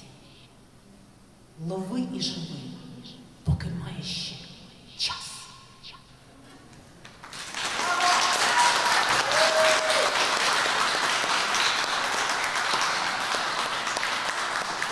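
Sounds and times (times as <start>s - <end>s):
audience applauding: 7.0s - 14.9s.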